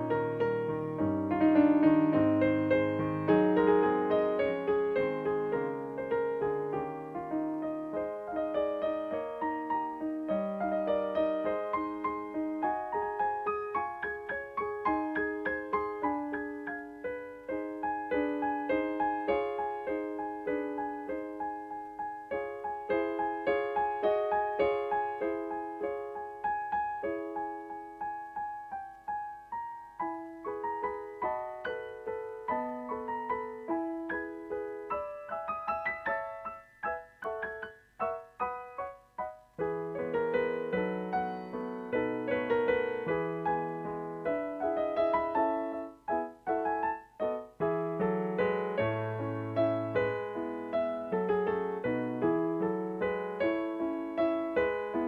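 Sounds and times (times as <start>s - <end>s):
solo piano music: 0.0s - 55.0s.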